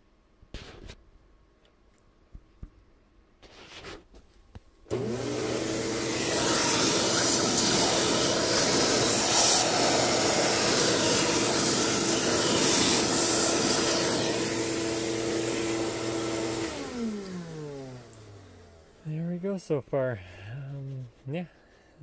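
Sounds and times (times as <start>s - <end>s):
milling machine running: 4.9s - 18.4s
vacuum hose hissing: 4.9s - 19.2s.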